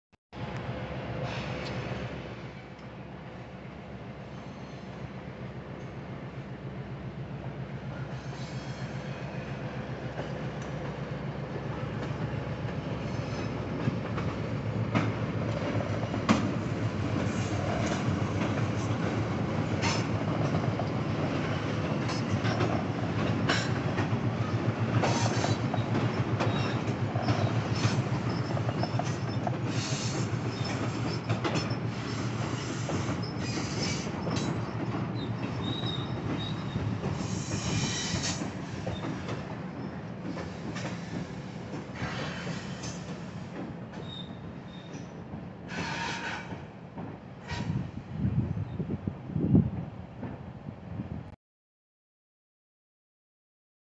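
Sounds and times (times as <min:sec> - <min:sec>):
freight train rumbling: 0:00.4 - 0:51.4
high wheel squeals: 0:35.2 - 0:39.1.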